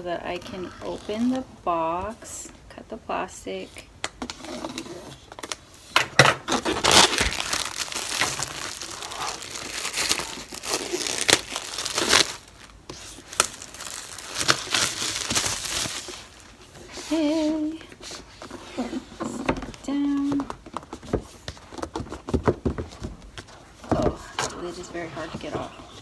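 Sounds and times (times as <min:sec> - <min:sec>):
shrink-wrap crinkling and tearing: 0:06.3 - 0:16.7.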